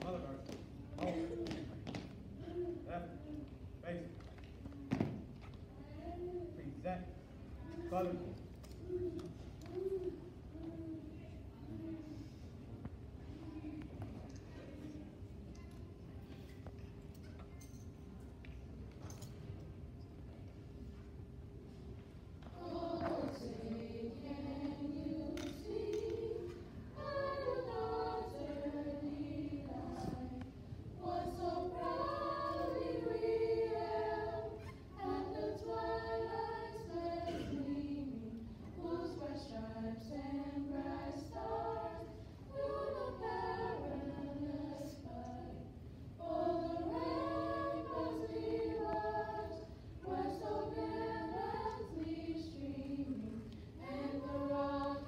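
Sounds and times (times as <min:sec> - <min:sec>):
women singing a cappella: 0:22.4 - 0:55.0.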